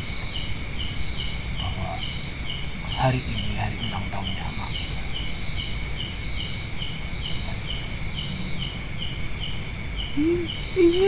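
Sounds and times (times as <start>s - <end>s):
crickets chirping: 0.0s - 11.0s
high-pitched insect buzz: 0.0s - 11.0s.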